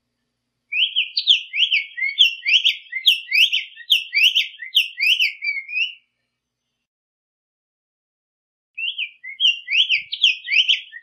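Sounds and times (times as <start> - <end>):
bird singing sharp notes: 0.7 - 6.1, 8.8 - 11.0.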